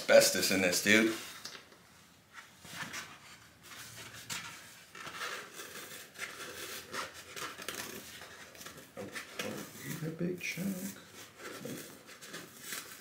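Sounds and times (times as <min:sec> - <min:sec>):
foam scratching and crumbling: 0:04.6 - 0:13.0.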